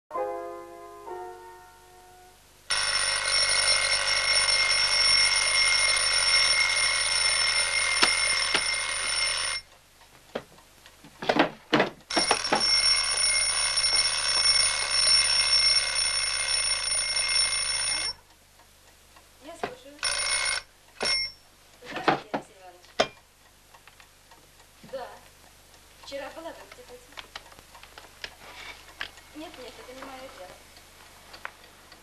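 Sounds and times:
alarm clock bell ringing: 2.7 - 9.7, 12.1 - 18.2, 20.0 - 21.4.

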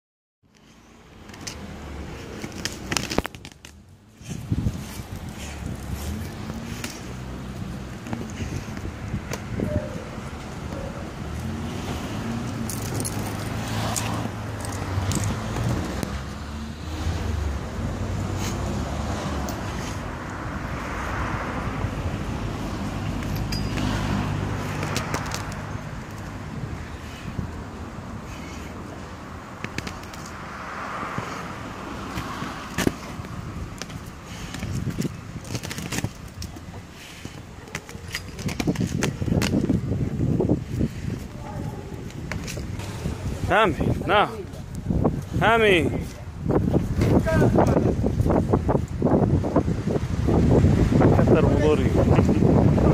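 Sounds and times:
street traffic hum: 0.4 - 52.9
dog collar metal jangling: 12.6 - 13.5, 23.2 - 24.0, 37.6 - 39.1
leash clip and collar jingling: 12.6 - 15.4, 23.1 - 26.3, 33.7 - 39.8.

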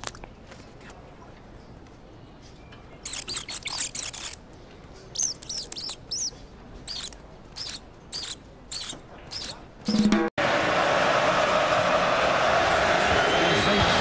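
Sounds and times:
mice squeaking: 3.0 - 4.4, 5.0 - 10.1.

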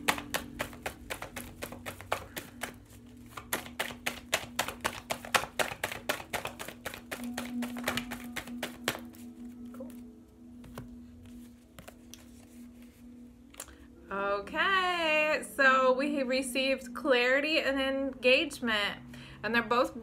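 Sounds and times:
cards being shuffled: 0.0 - 13.8
steady low tone: 7.2 - 19.7.

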